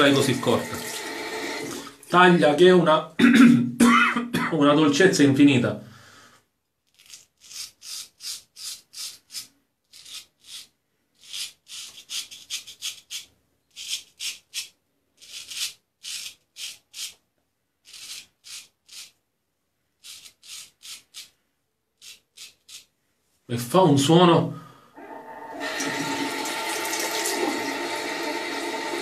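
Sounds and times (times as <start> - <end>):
razor scraping beard stubble: 6.8 - 17.2, 17.8 - 19.2, 20.0 - 21.4, 22.0 - 22.9.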